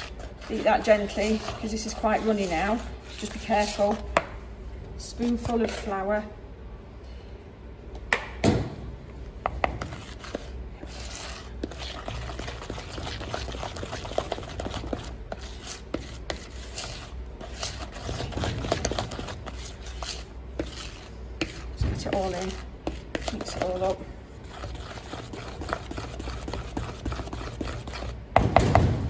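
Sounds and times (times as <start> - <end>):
wooden spoon beating batter: 9.4 - 28.5.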